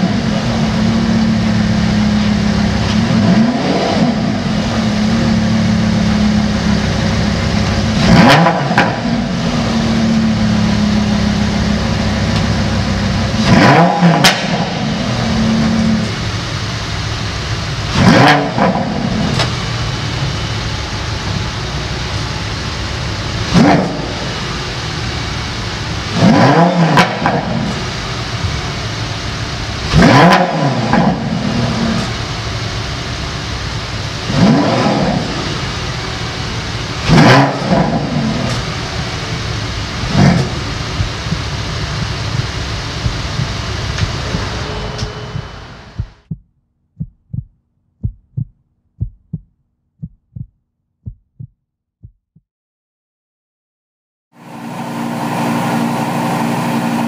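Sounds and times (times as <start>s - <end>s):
car engine idling and revving: 0.0s - 49.5s, 54.4s - 57.0s
heartbeat thumps: 41.0s - 52.4s.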